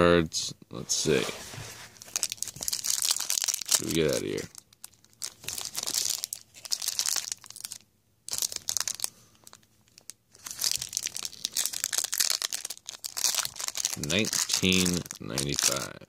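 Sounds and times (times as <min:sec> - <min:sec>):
foil wrapper crinkling: 0:02.0 - 0:16.0.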